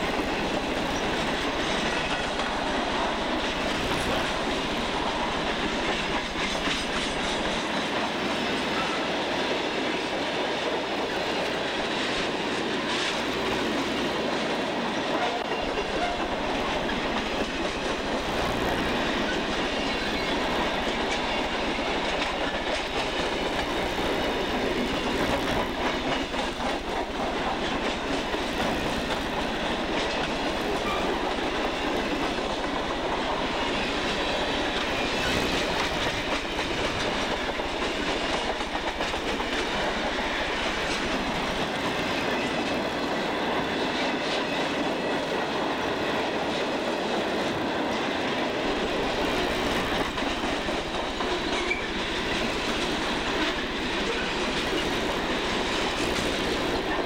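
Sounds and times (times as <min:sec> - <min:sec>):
wheel clatter over track: 0:00.0 - 0:08.1, 0:15.4 - 0:42.9, 0:48.6 - 0:57.0
steel wheels rolling on rail: 0:00.0 - 0:57.0.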